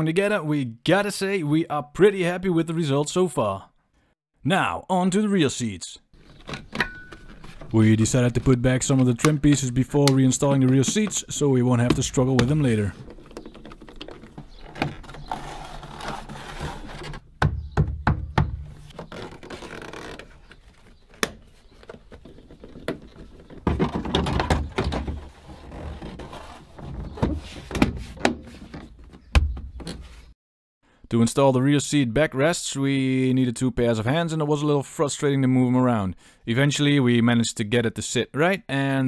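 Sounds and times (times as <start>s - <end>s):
plastic panels scraping and rustling: 6.2s - 17.7s, 18.3s - 30.3s.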